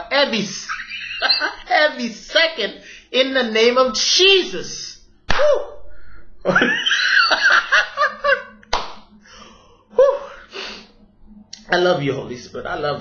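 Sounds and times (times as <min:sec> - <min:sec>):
sharp hand claps: 0:08.6 - 0:09.1.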